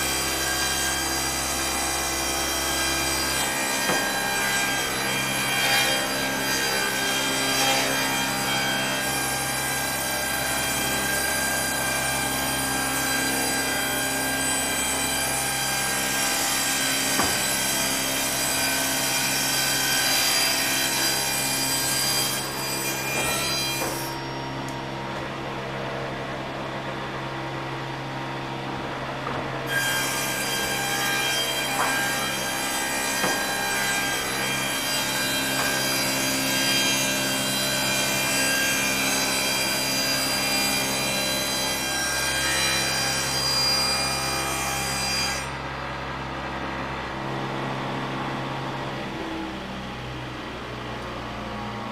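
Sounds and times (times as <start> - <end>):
sawmill saw cutting wood: 0.0 - 51.9.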